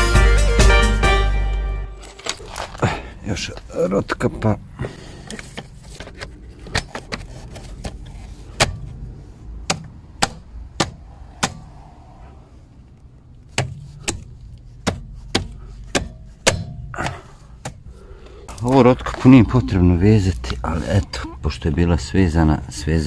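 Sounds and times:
hand slapping hubcap onto wheel: 13.5s - 17.8s.

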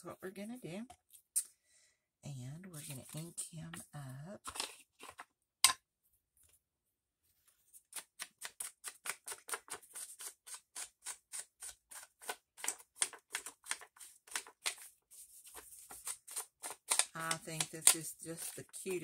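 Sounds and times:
ink pad brushing over paper: 14.7s - 16.4s.

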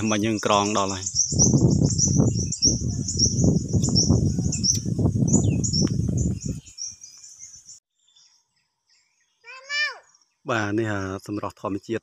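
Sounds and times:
wind buffeting microphone: 0.0s - 7.7s
bird chirping: 0.0s - 12.0s.

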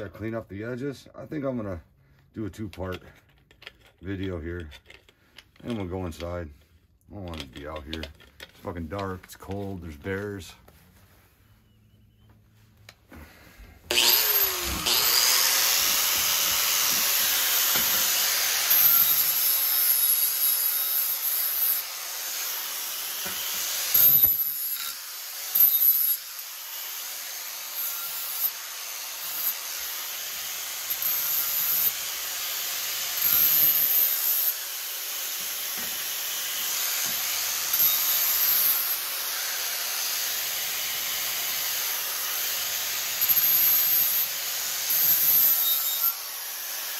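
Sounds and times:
handheld power tool grinding: 12.8s - 46.9s.

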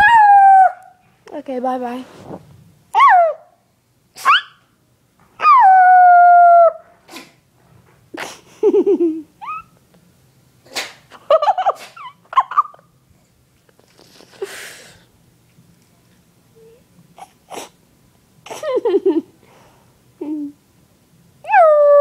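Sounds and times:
puppy howling: 0.0s - 1.0s, 3.0s - 3.6s, 5.4s - 6.8s, 21.4s - 22.0s
puppy yipping and whining: 0.0s - 1.0s, 3.0s - 3.6s, 4.2s - 4.6s, 5.4s - 6.8s.

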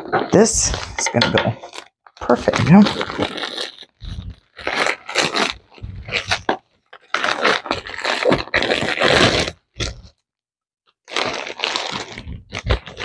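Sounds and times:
plastic bag crinkling: 1.7s - 10.1s, 11.1s - 13.0s.

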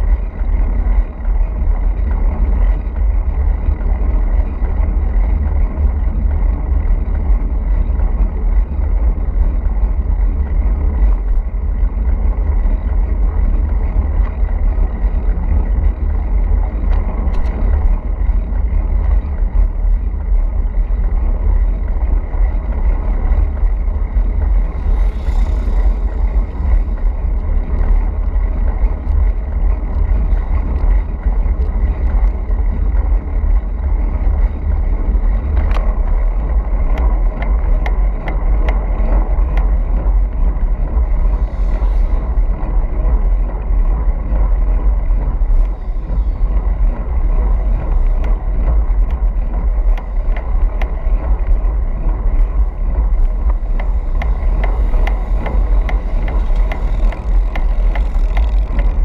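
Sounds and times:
road and tyre noise: 0.0s - 59.0s
wind buffeting microphone: 0.0s - 59.0s
sharp ticks and knocks: 35.4s - 40.2s, 47.1s - 59.0s.

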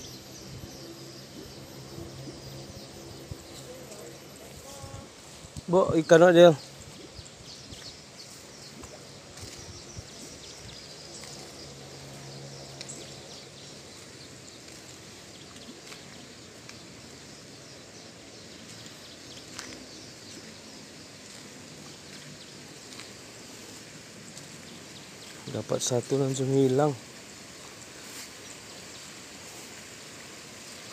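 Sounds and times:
flowing water hiss: 0.0s - 30.9s
small ticks: 12.1s - 17.2s, 18.7s - 20.5s, 22.9s - 23.2s.

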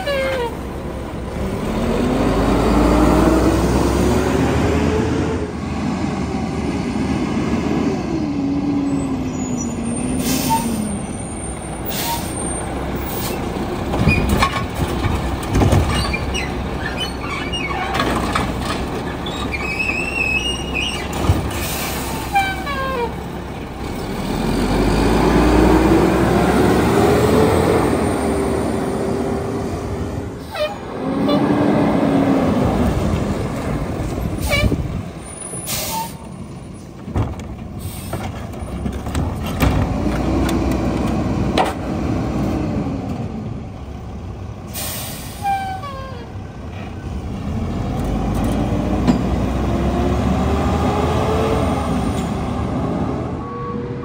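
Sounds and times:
garbage truck engine revving: 0.0s - 11.1s, 23.3s - 34.5s, 47.1s - 53.4s
air brake hisses: 10.1s - 10.9s, 35.6s - 36.3s, 44.7s - 45.6s.

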